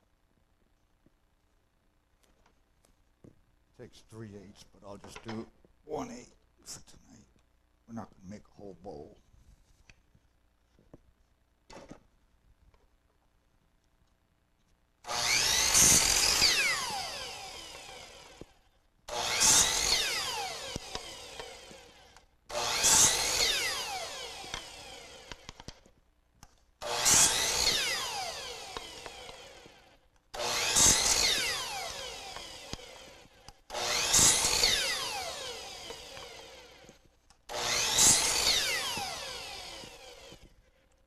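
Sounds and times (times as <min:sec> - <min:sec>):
miter saw cutting wood: 0:15.0 - 0:25.9, 0:26.8 - 0:40.8
saw blade whining down: 0:15.0 - 0:25.9, 0:26.8 - 0:40.6.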